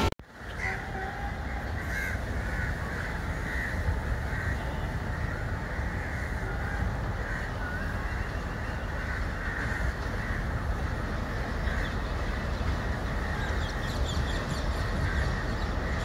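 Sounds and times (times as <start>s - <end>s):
crows cawing: 1.8s - 6.6s, 7.2s - 8.3s, 8.9s - 10.6s.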